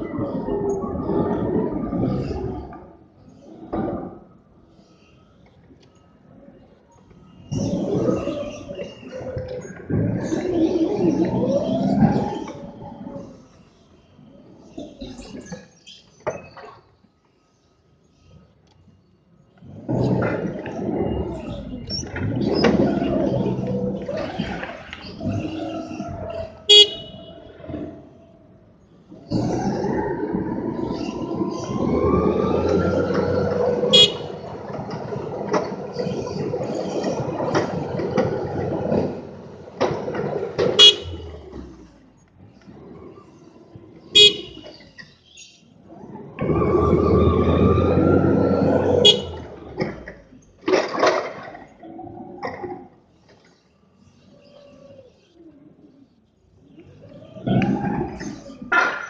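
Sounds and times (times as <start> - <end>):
forklift truck running: 26.7 - 27.2, 31.2 - 41.3
forklift horn beep: 26.7 - 27.3, 33.9 - 34.3, 40.8 - 41.2, 44.2 - 44.7, 49.0 - 49.4.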